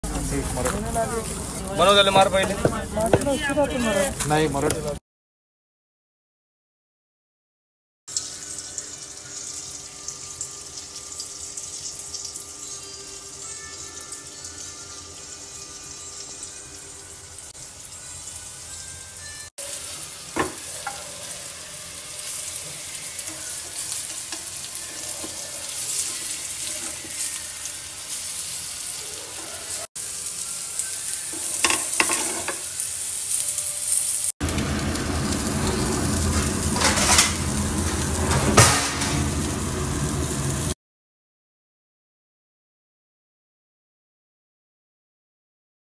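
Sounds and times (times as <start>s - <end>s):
fish sizzling in oil: 0.0s - 4.5s, 8.1s - 40.8s.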